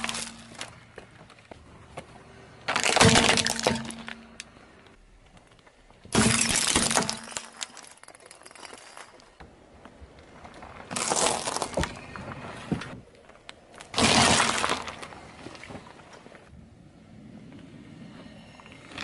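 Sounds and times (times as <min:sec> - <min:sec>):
plastic toy crushed under tyre: 0:00.0 - 0:00.7, 0:02.7 - 0:04.5, 0:06.1 - 0:09.3, 0:10.9 - 0:12.1, 0:13.8 - 0:15.2
light bulbs shattering: 0:02.7 - 0:04.5, 0:06.1 - 0:09.3.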